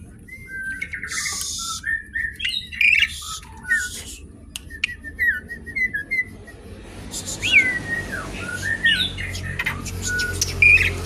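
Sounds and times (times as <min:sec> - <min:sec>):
bird fluting whistles: 0:00.3 - 0:10.9.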